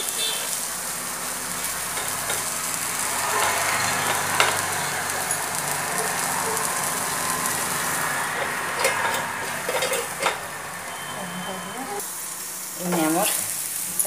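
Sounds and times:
vegetables sizzling in oil: 0.0s - 14.0s
steel lid clinking onto pan: 8.8s - 10.5s.

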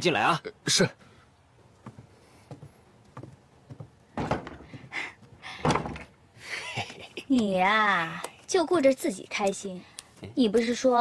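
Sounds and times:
wooden door shutting: 4.2s - 4.8s, 5.6s - 6.2s.

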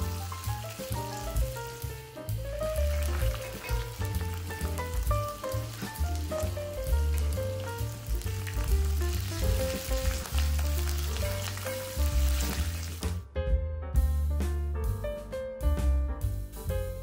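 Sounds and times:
spices sizzling in hot oil: 0.0s - 13.2s
instrumental music with bass: 0.0s - 17.0s.

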